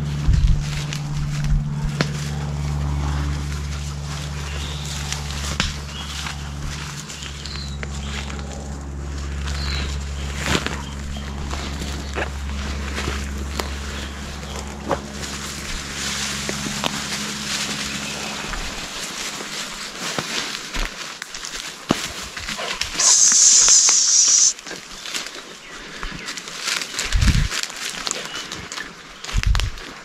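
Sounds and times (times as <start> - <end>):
low rumble: 0.0 - 20.0
footsteps crackling twigs and leaves: 0.0 - 30.0
loud high hiss: 23.0 - 24.6.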